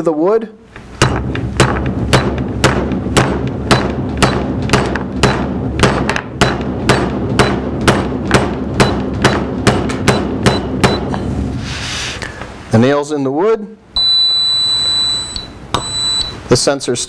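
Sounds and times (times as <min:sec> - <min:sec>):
hammer driving nail into wood: 0:00.9 - 0:11.2.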